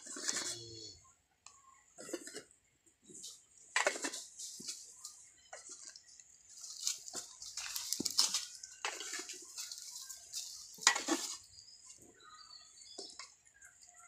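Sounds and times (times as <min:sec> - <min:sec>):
calf eating from metal plate: 0:00.0 - 0:00.6, 0:03.7 - 0:11.5.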